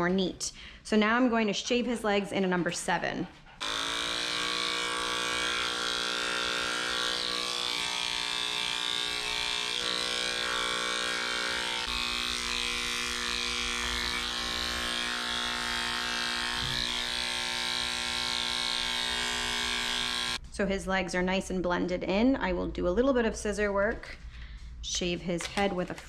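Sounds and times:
electric clippers motor hum: 3.6 - 20.4.

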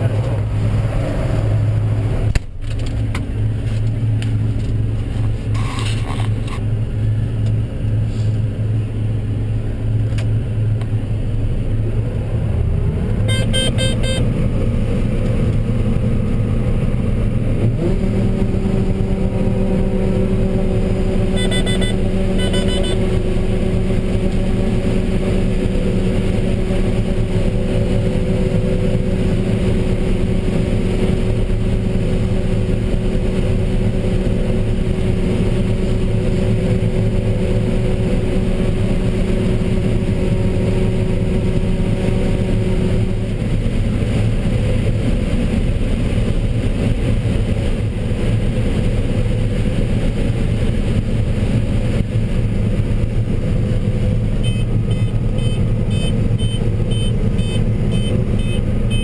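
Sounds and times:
combine harvester engine drone: 0.0 - 59.0
electronic beeping: 5.6 - 6.0, 13.3 - 14.2, 21.4 - 23.0, 54.4 - 59.0
humming tone: 13.0 - 14.6, 17.9 - 31.9, 54.4 - 59.0.

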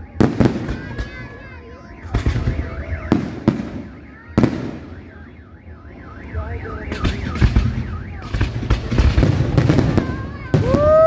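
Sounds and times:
firework crackle: 7.1 - 11.0.

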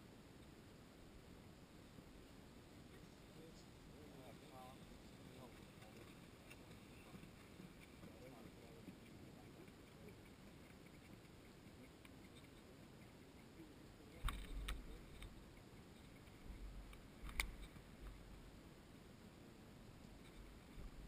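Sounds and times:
sharp clicks: 16.1 - 18.2.

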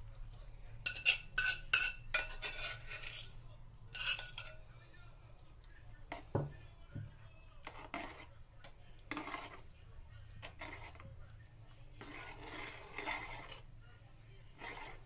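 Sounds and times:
utensils scraping and rubbing: 0.8 - 4.6, 7.6 - 9.8, 10.4 - 11.1, 12.0 - 13.7, 14.5 - 15.0
sharp knocks of cookware: 6.1 - 7.2.

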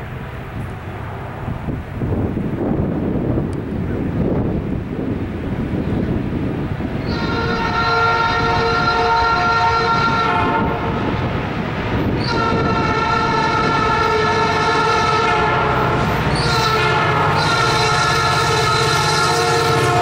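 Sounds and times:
locomotive air horn blasts: 7.0 - 11.1, 12.2 - 20.0.

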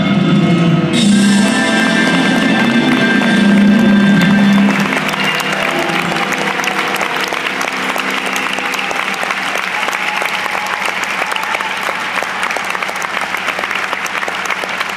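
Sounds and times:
music chord: 0.0 - 9.9
audience applause: 1.0 - 14.9.

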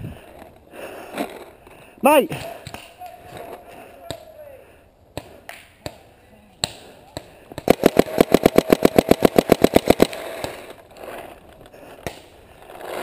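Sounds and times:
paintball marker firing: 6.6 - 10.8.

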